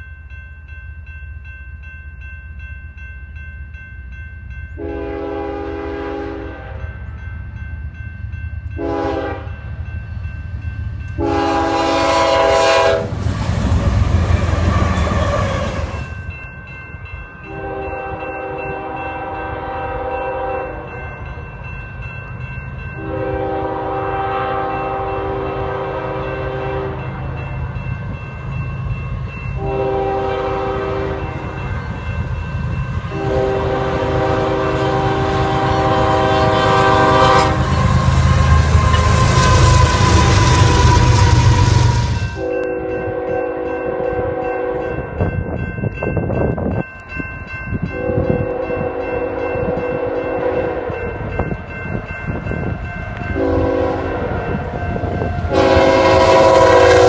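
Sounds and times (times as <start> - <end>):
low rumble of train: 0.0 - 57.0
locomotive horn chord: 4.8 - 7.0, 8.8 - 9.6, 11.2 - 13.2, 17.4 - 21.1, 23.0 - 27.4, 29.6 - 31.6, 33.1 - 45.0, 47.9 - 51.1, 53.2 - 57.0.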